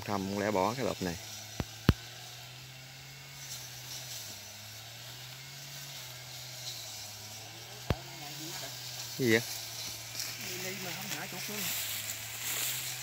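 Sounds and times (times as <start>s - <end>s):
distant brush-cutter engine drone: 0.0s - 13.0s
grass rustling underfoot: 3.2s - 13.0s.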